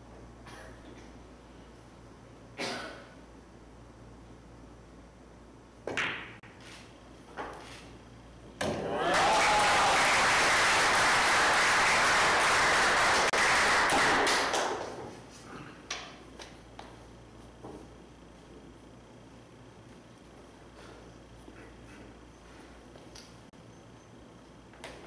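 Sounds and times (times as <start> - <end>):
applause: 9.0 - 15.0.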